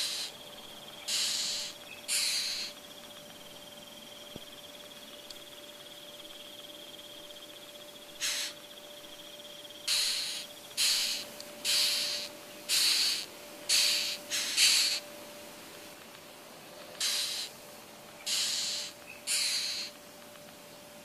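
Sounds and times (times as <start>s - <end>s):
beetle short hissing rasps: 0.0s - 0.4s, 1.1s - 2.7s, 8.2s - 8.6s, 9.9s - 15.0s, 17.0s - 17.5s, 18.3s - 19.9s
beetle high pulsing trill: 0.0s - 15.1s.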